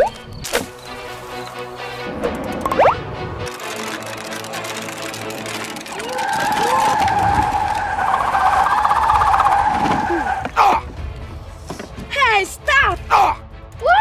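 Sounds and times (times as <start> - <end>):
tire screech: 6.0 - 10.7.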